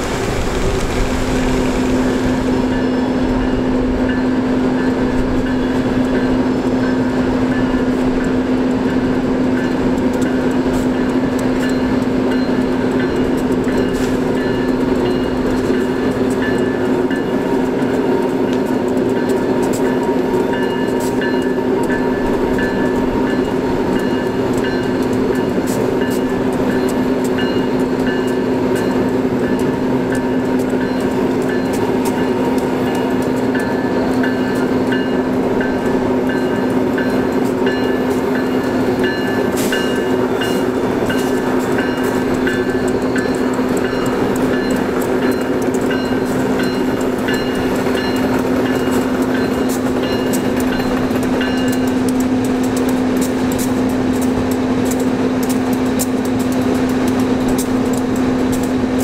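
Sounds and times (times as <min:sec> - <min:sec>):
diesel engine drone: 0:00.0 - 0:04.1
locomotive bell ringing: 0:00.0 - 0:59.0.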